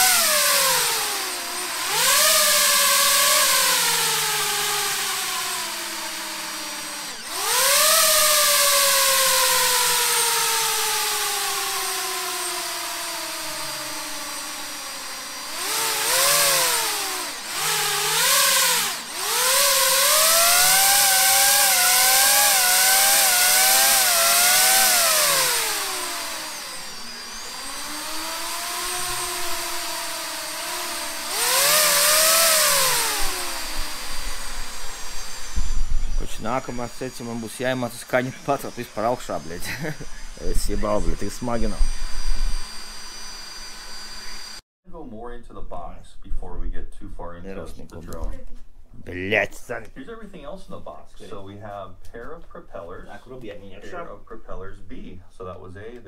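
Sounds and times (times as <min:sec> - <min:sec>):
drone propellers whining: 0:00.0 - 0:44.6.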